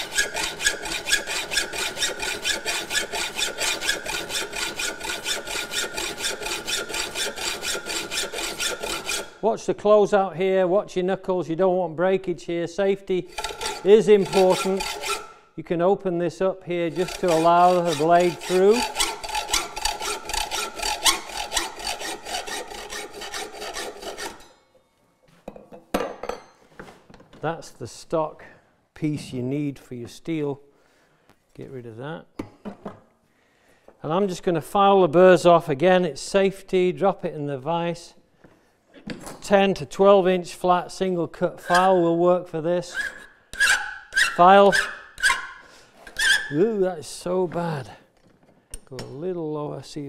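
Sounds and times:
hacksaw rasping through steel: 0:00.0 - 0:09.4, 0:13.3 - 0:15.4, 0:16.8 - 0:24.6, 0:41.6 - 0:42.1, 0:42.8 - 0:46.6.

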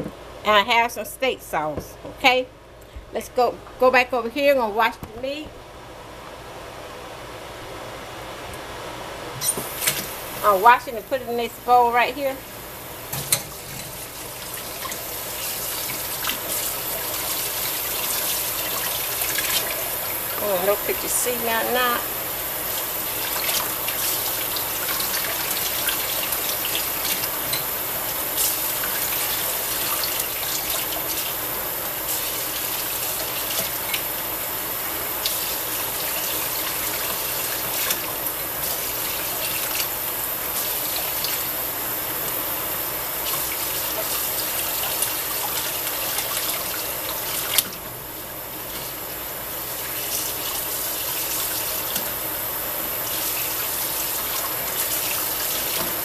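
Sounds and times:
faucet running into steel sink: 0:22.7 - 0:34.2.

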